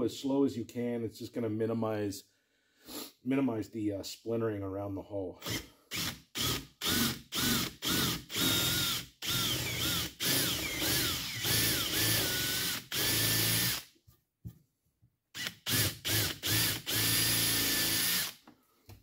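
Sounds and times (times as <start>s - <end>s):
cordless drill boring wood: 5.4s - 13.9s, 15.4s - 18.5s.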